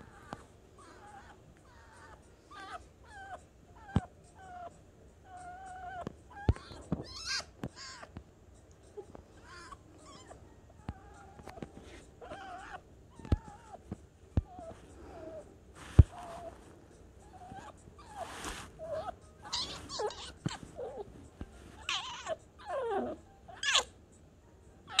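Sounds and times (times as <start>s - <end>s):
fox whining calls: 0.0s - 8.1s, 12.2s - 13.8s, 16.1s - 16.6s, 17.2s - 21.1s, 21.8s - 23.9s.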